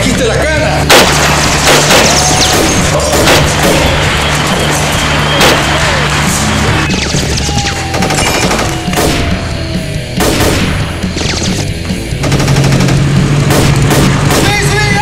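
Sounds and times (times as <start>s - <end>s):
action music: 0.0s - 15.0s
loud single gunshots: 0.9s - 4.2s, 10.2s - 11.6s, 13.5s - 14.6s
gunshot bursts: 0.9s - 5.9s, 6.9s - 9.5s, 10.2s - 14.8s.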